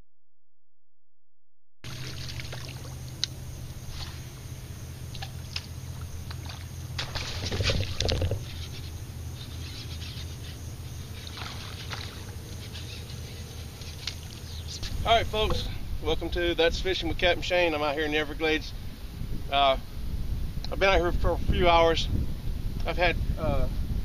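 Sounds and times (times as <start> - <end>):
water washing: 1.9 - 4.4, 5.0 - 8.6, 11.2 - 12.6
low hum: 1.9 - 17.3.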